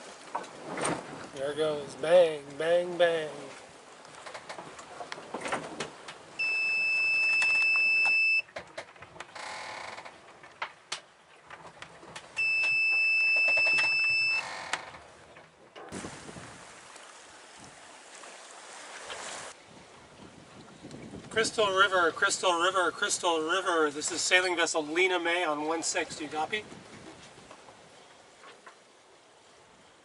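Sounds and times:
collision alarm beeping: 6.4s - 8.5s, 12.4s - 14.4s.

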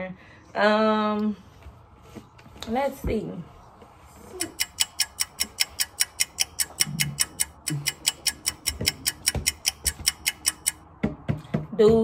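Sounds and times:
toy rapid beeping: 4.4s - 10.8s.

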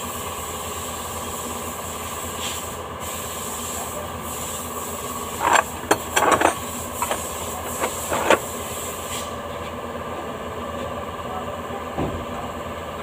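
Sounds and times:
workshop hum: 4.8s - 9.3s
sharp knocks and clinks: 5.4s - 8.4s.

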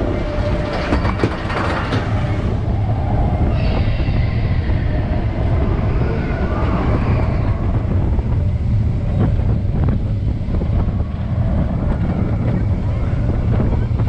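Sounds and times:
roller coaster wheels rumbling: 0.0s - 14.0s
wind on microphone: 0.0s - 14.0s
faint high squeal: 2.7s - 7.8s.

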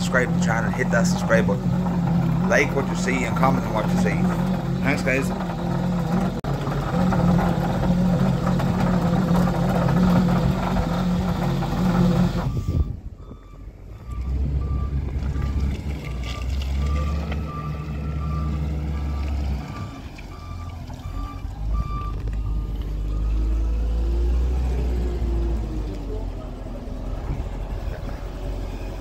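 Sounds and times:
loader engine rumbling low: 0.0s - 29.0s
reversing alarm beeping: 12.1s - 24.3s, 27.0s - 29.0s.

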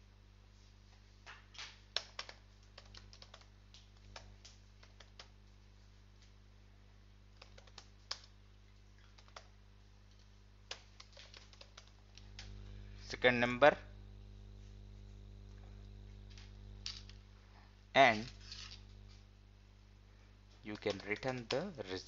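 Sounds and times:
faint low hum: 0.0s - 22.0s
keyboard typing clicks: 1.6s - 5.3s, 7.4s - 8.4s, 9.0s - 9.5s, 10.1s - 12.6s, 20.7s - 21.8s.

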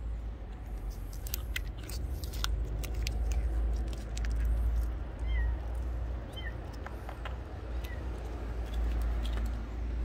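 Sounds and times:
cat chewing with sharp clicks: 0.4s - 9.8s.

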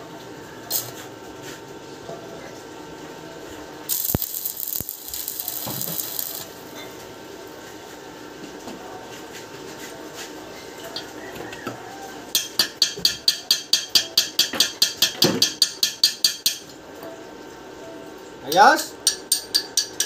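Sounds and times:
arc welder crackling: 3.9s - 7.1s
metal tool tapping on metal: 12.3s - 16.8s, 19.0s - 20.0s.

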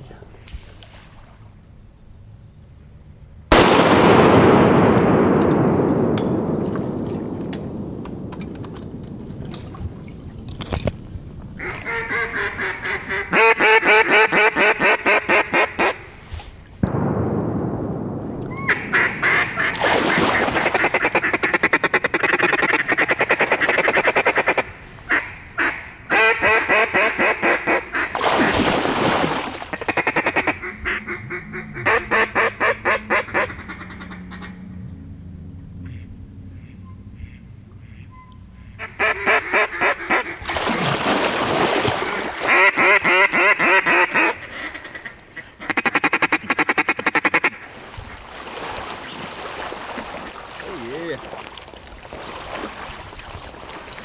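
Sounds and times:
loud bang: 3.5s - 10.0s, 16.8s - 20.9s
duck call quacking: 11.6s - 16.0s, 18.6s - 28.2s, 29.7s - 34.7s, 35.8s - 40.4s, 42.1s - 47.6s.

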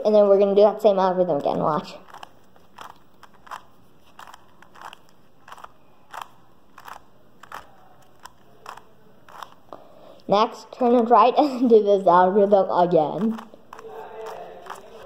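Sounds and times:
puzzle cube clicking: 1.3s - 10.3s, 12.4s - 15.0s.

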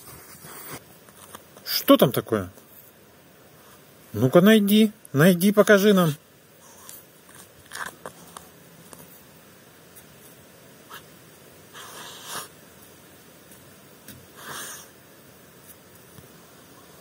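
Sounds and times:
puppy sniffing: 11.7s - 12.6s.

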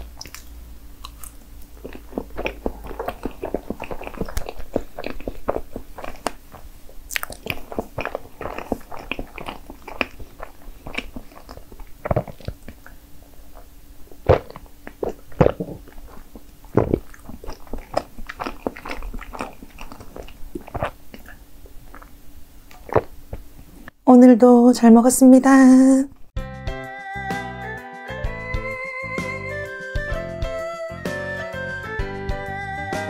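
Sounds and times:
wet mouth clicks and smacks: 0.0s - 13.0s, 14.2s - 22.1s
chewing soft cake: 0.0s - 24.0s.

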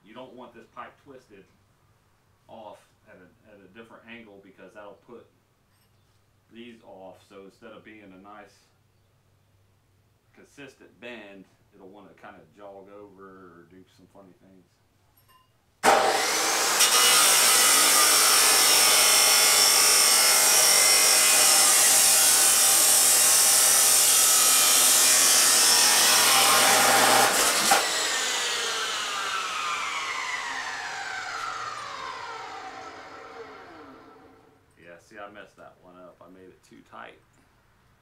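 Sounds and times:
chop saw cutting steel pipe: 15.8s - 34.4s
saw blade spinning down: 15.8s - 34.6s.

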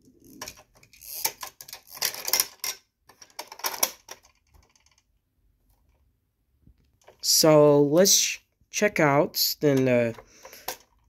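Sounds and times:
hard plastic clicking and rattling: 0.2s - 5.1s, 9.8s - 11.0s.

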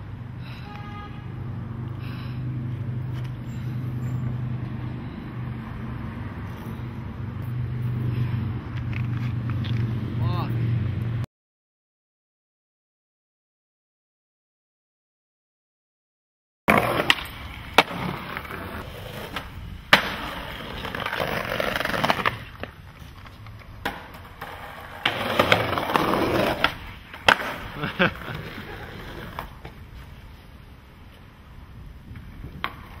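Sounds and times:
skateboard wheels rolling on concrete: 0.0s - 10.3s, 16.7s - 33.0s
skateboard clacking on ground: 16.7s - 29.8s, 32.1s - 33.0s.

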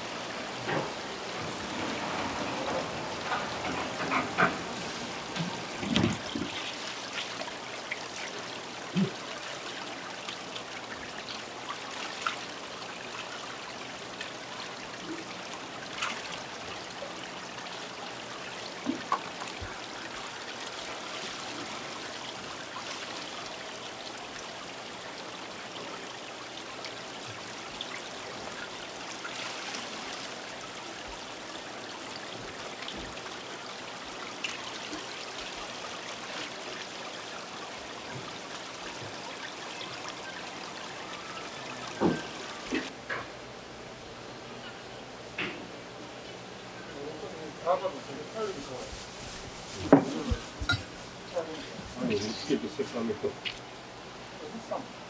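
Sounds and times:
water splashing into tanks: 0.0s - 43.2s
knocks and clatters: 0.6s - 4.8s.

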